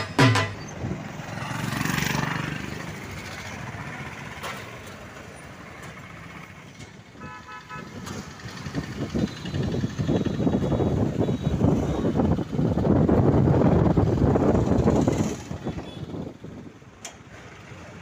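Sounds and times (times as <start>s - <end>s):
road traffic: 0.0s - 18.0s
vehicle horn short beeps: 10.8s - 12.1s.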